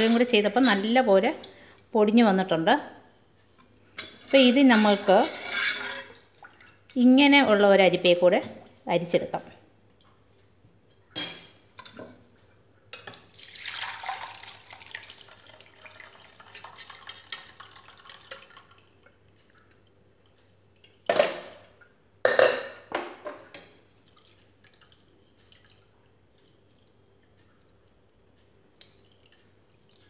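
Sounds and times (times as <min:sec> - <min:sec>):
soup pouring through strainer: 0:13.1 - 0:18.9.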